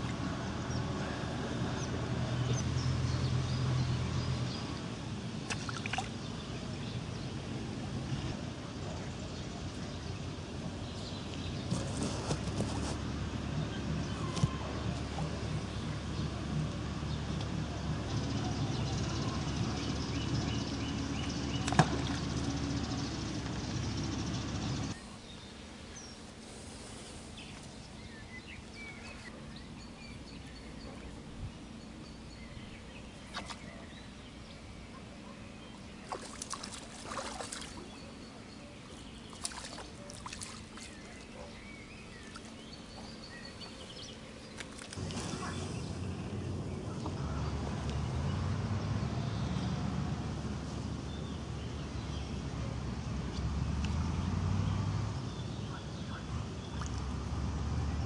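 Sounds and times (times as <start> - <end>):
steady noisy hiss: 0.0 - 39.8.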